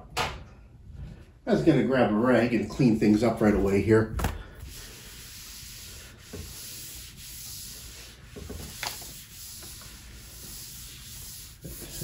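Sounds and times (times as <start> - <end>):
cloth rag rubbing on wood: 4.7 - 12.0.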